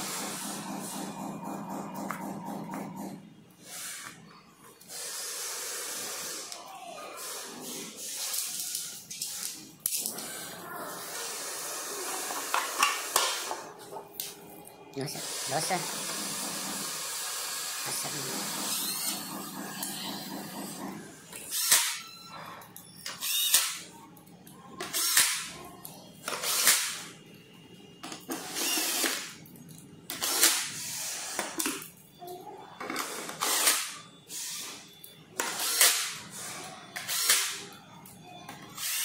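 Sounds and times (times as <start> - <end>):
cordless drill driving screws: 28.4 - 29.3.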